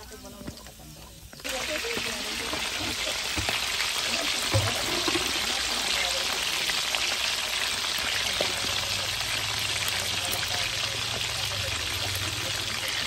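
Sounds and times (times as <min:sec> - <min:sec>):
pork frying in hot oil: 0:00.0 - 0:13.0.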